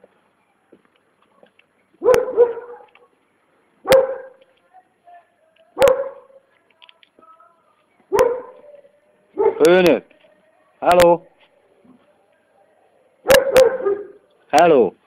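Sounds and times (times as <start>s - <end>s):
dog barking: 2.0s - 3.1s, 3.8s - 4.4s, 5.8s - 6.4s, 8.1s - 8.8s, 9.4s - 9.7s, 13.2s - 14.2s.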